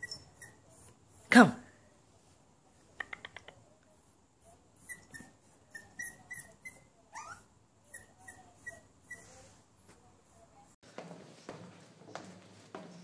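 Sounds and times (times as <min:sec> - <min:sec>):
puppy whimpering: 0:04.8 - 0:09.4.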